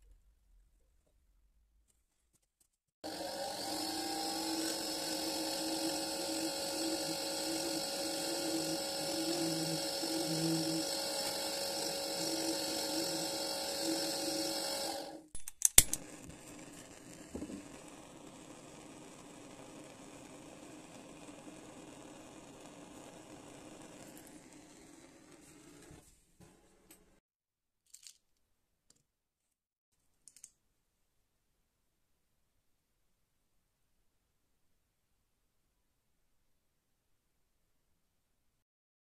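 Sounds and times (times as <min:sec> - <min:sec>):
electric motor whine: 0:03.0 - 0:15.3, 0:16.0 - 0:25.6
gas torch flame hissing: 0:03.0 - 0:15.3, 0:15.9 - 0:26.0.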